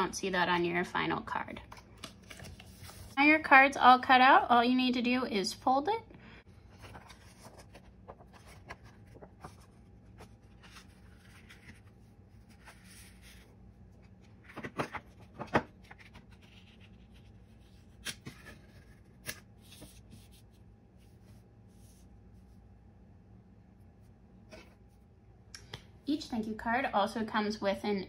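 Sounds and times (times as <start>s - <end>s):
paper rustling and sliding: 2.0s - 3.2s, 6.6s - 22.1s.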